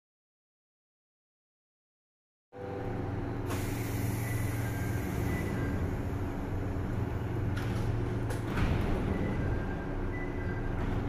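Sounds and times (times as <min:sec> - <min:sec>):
electric train equipment humming: 0:02.6 - 0:08.5
air hissing: 0:03.5 - 0:05.6.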